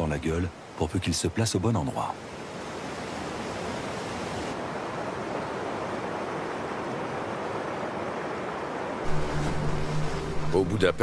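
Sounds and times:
river rapids rushing: 2.4s - 11.0s.

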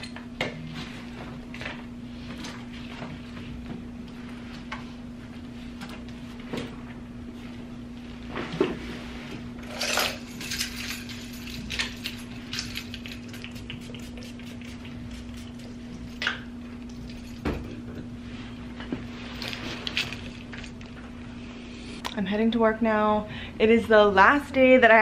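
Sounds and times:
keys jingling: 9.7s - 14.0s, 16.8s - 17.5s, 19.3s - 20.9s.

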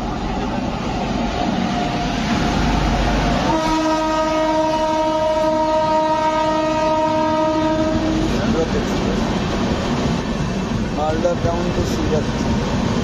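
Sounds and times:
train wheels rumbling on rails: 0.0s - 13.0s
locomotive horn blast: 3.4s - 8.6s.

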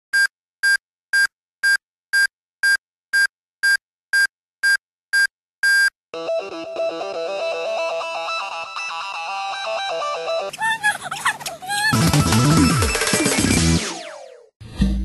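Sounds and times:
music with electric guitar: 6.2s - 10.5s, 12.0s - 13.8s.

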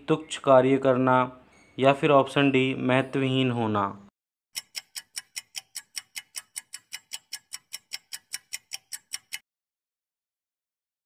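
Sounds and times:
clock-like ticking: 4.6s - 9.4s.

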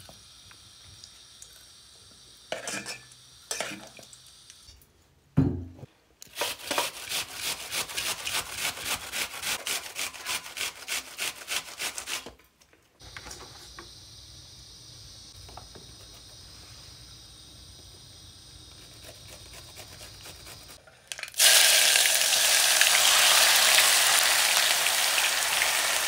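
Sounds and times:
thump: 5.4s - 5.9s
onion grated on metal grater: 6.3s - 12.3s, 18.8s - 20.8s.

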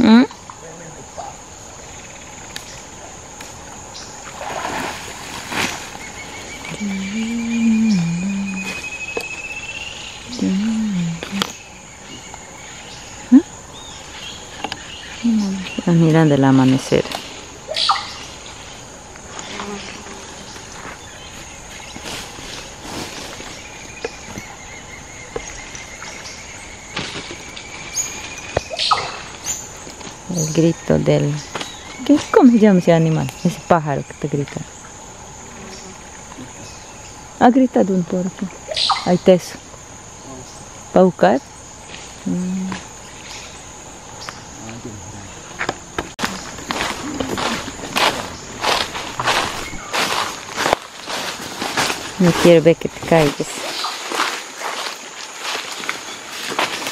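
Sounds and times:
high insect drone: 0.0s - 56.9s
water splashing and sloshing: 3.6s - 6.7s, 46.2s - 56.9s
low drawn-out steady tone: 6.6s - 12.2s
soft rustles: 21.7s - 23.6s.

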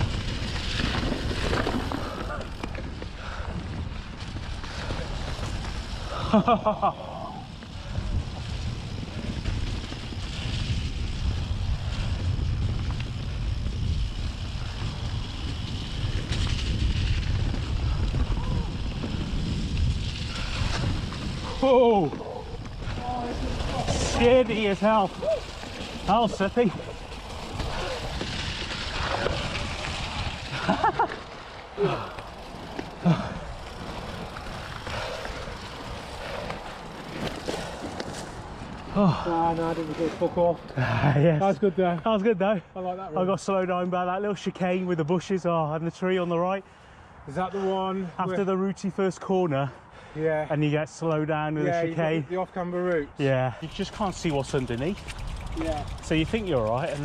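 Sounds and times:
wind rumble on microphone: 0.0s - 39.0s, 53.6s - 57.0s
bike rattling over bumps: 0.0s - 41.5s, 53.6s - 57.0s
bike tyre noise: 0.0s - 42.2s, 52.9s - 57.0s.

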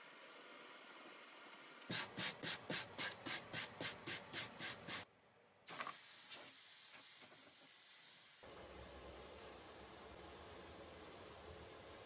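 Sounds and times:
steady hiss: 0.0s - 8.4s.

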